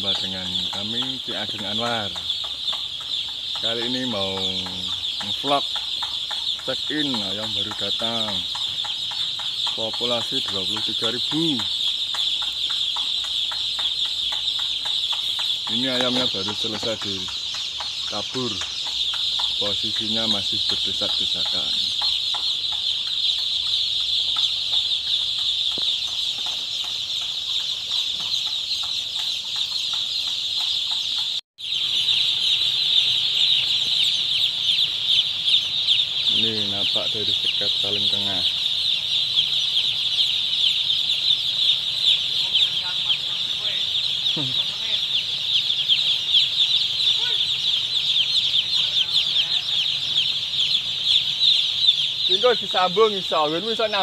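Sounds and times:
chicks peeping: 0.0s - 54.0s.

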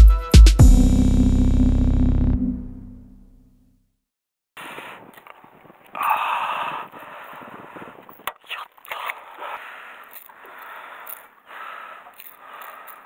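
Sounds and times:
fishing gear knocks and clicks: 10.0s - 11.4s, 12.0s - 13.0s.

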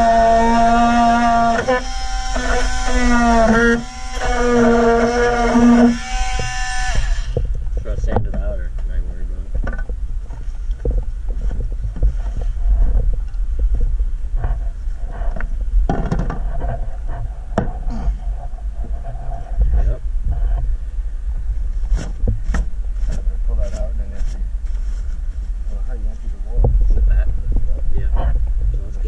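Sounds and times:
steady low rumble: 6.8s - 29.0s
plastic hatch knocks and clicks: 15.9s - 16.4s.

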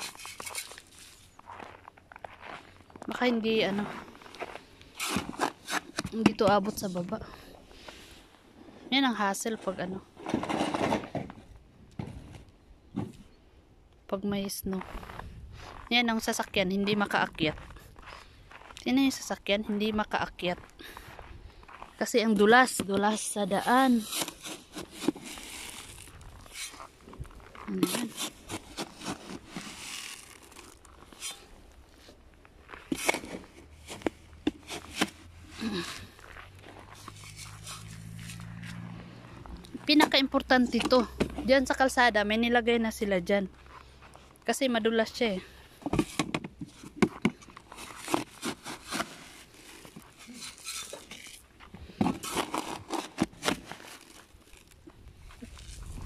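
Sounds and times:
footsteps crunching on icy snow: 0.0s - 7.2s, 14.8s - 40.0s, 47.6s - 56.0s
scoop crunching rock salt: 28.0s - 31.5s.

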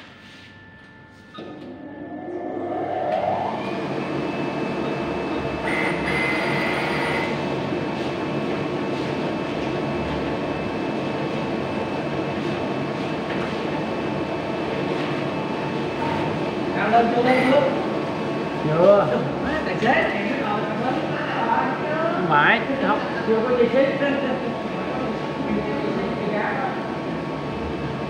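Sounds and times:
whining tones: 0.0s - 7.6s
heavy machine rumbling: 0.0s - 10.8s.

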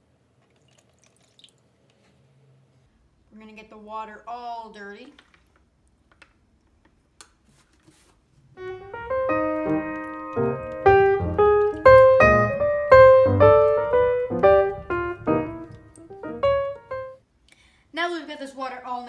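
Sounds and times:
piano music: 8.6s - 17.2s.

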